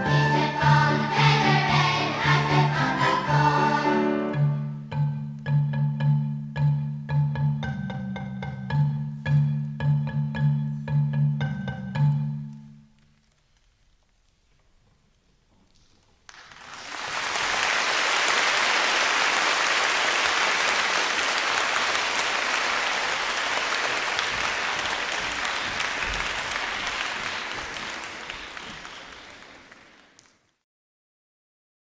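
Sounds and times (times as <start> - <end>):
audience applauding: 16.2 - 30.6.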